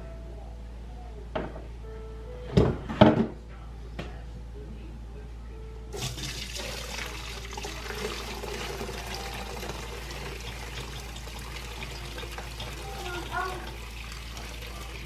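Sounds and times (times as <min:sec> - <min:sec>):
broth pouring through strainer: 0:06.0 - 0:15.0.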